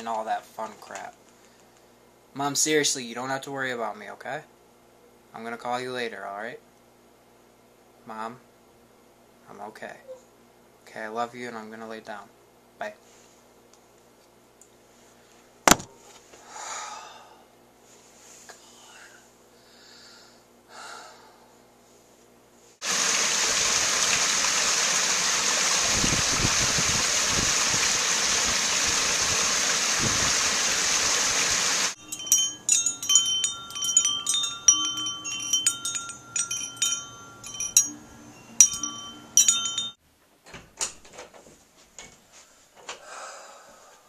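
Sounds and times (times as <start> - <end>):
wind chimes ringing: 32.0 - 40.0.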